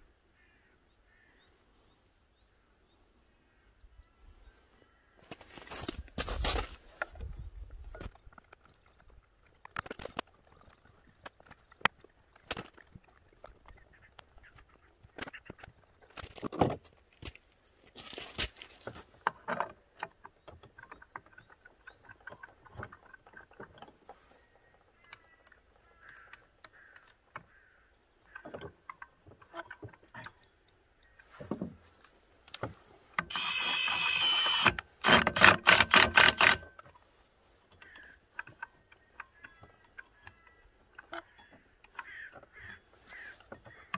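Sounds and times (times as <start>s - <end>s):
metal parts clicking and knocking: 5.8s - 17.8s, 18.8s - 37.1s, 37.7s - 43.9s
rapid sharp clicks: 33.2s - 36.8s.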